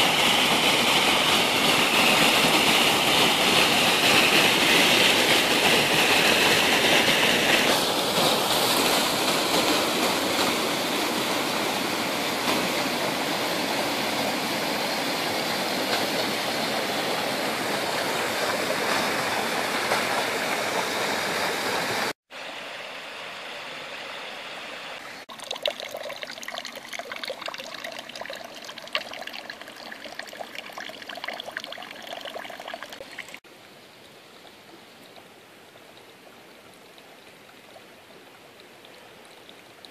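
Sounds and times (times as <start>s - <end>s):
creek rushing over cascades: 0.0s - 25.3s
water splashing: 25.2s - 33.4s.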